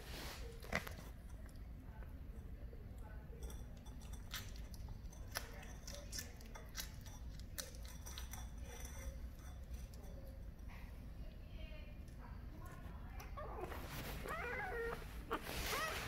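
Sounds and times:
kitten chewing food: 0:02.9 - 0:11.2.

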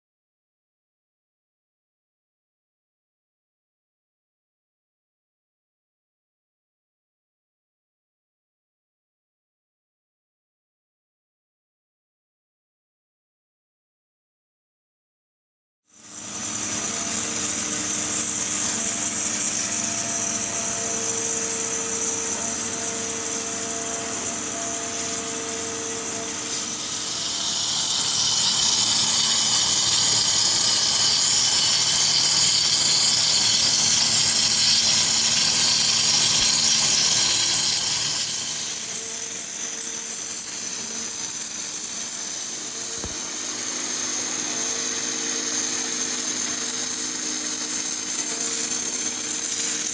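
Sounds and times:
waterjet cutter hissing: 0:15.9 - 0:49.9.

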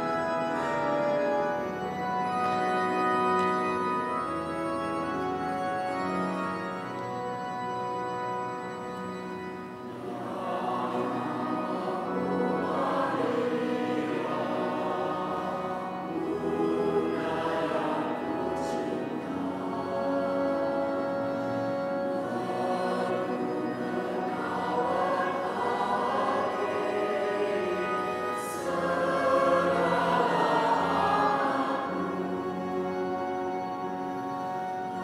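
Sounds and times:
keyboard chords: 0:00.0 - 0:35.0
mixed choir singing a hymn: 0:09.9 - 0:34.0.

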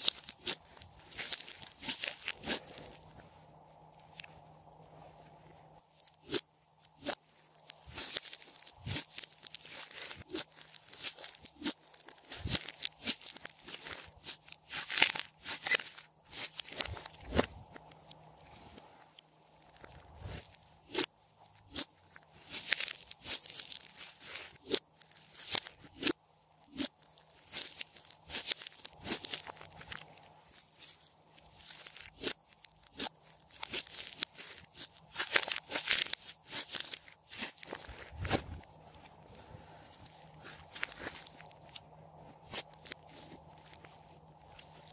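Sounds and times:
slime crackling and popping: 0:00.0 - 0:03.1, 0:06.0 - 0:18.1, 0:19.1 - 0:38.4.

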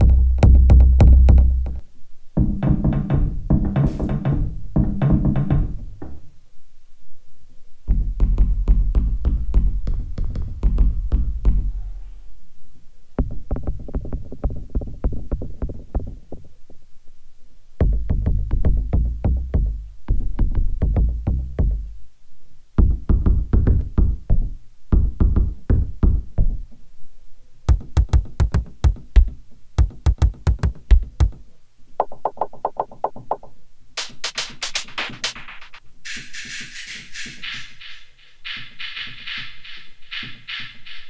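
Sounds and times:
electronic kick drum hits: 0:02.4 - 0:05.7, 0:07.9 - 0:11.7, 0:17.8 - 0:21.9, 0:22.8 - 0:26.6, 0:27.7 - 0:31.4
pop percussion hits: 0:27.7 - 0:31.4, 0:32.0 - 0:41.0.

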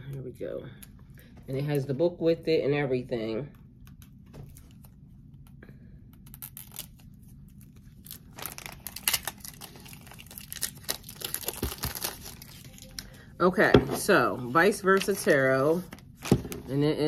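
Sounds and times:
packaging tearing and crinkling: 0:06.2 - 0:13.0.

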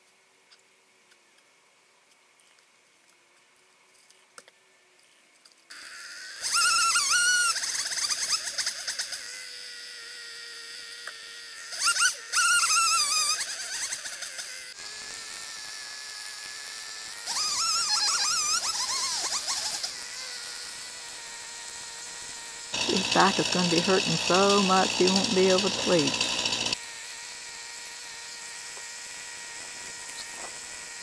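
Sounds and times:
chainsaw idling and revving: 0:19.3 - 0:31.0.

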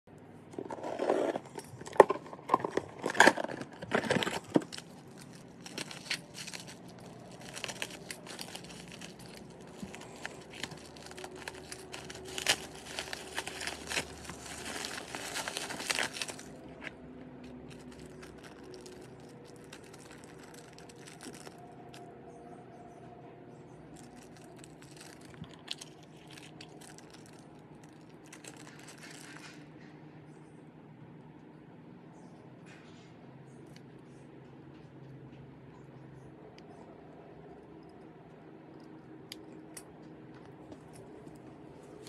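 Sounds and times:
cardboard box tearing open: 0:00.6 - 0:16.6
bubble wrap crinkling: 0:00.6 - 0:22.1, 0:23.8 - 0:29.6.

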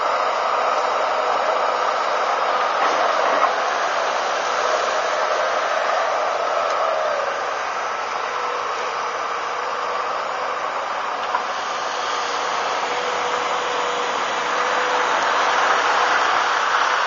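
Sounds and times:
excavator engine and hydraulics droning: 0:00.0 - 0:17.0.

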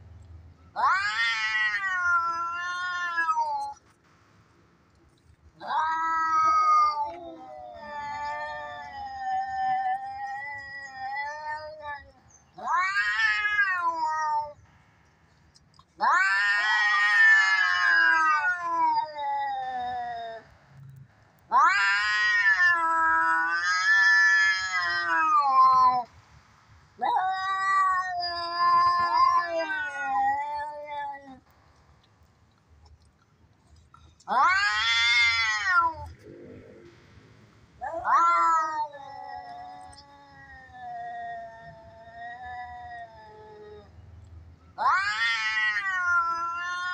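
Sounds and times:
cat yowling: 0:00.8 - 0:03.8, 0:05.6 - 0:14.6, 0:16.0 - 0:20.5, 0:21.5 - 0:26.1, 0:27.0 - 0:31.4, 0:34.3 - 0:36.2, 0:37.8 - 0:43.9, 0:44.8 - 0:46.9.

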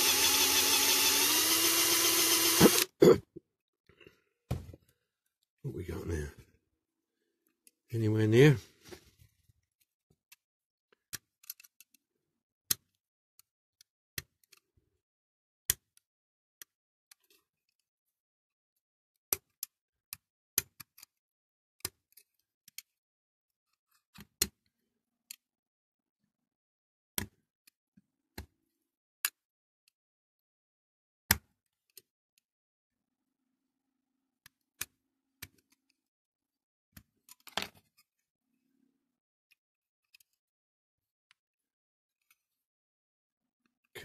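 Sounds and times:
drill bit metallic clicks: 0:00.0 - 0:02.9.

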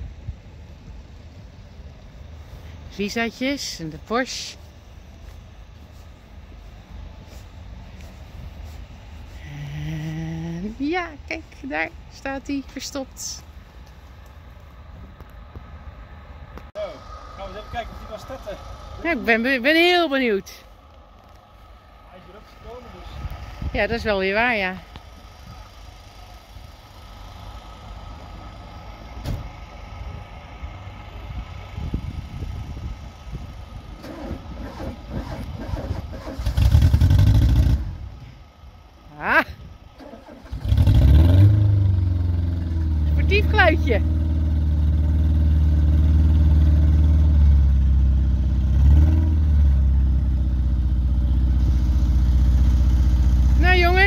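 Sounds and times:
car engine idling: 0:16.6 - 0:29.2.

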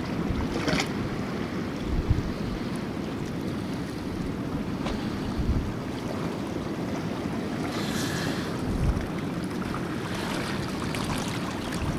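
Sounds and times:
rippling water: 0:00.0 - 0:11.9
wind buffeting microphone: 0:01.8 - 0:02.7, 0:04.1 - 0:05.9, 0:08.6 - 0:11.9.

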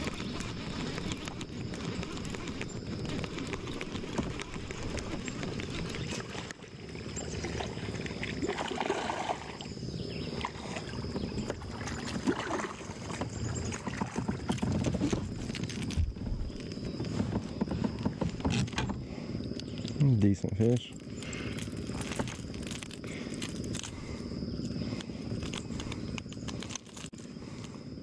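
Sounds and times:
water splashing and sloshing: 0:06.1 - 0:09.8, 0:10.4 - 0:16.0.

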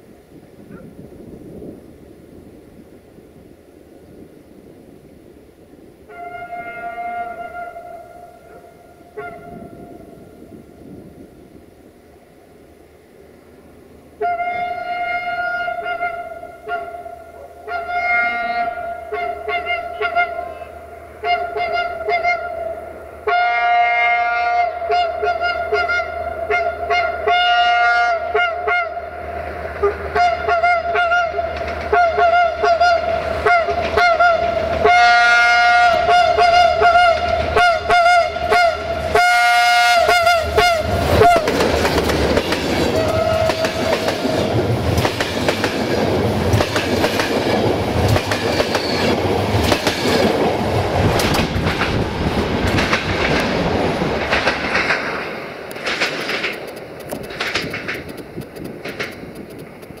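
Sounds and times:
locomotive air horn blasts: 0:06.1 - 0:10.1, 0:14.2 - 0:29.2, 0:29.8 - 0:41.5, 0:42.9 - 0:44.0
train wheels clattering over joints: 0:41.2 - 1:00.0.

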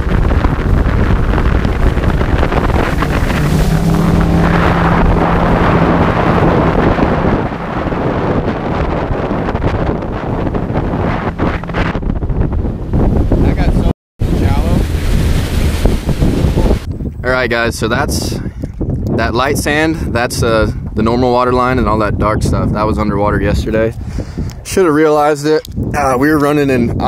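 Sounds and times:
outboard motor hum: 0:00.0 - 0:17.2
wind buffeting microphone: 0:00.0 - 0:27.0.

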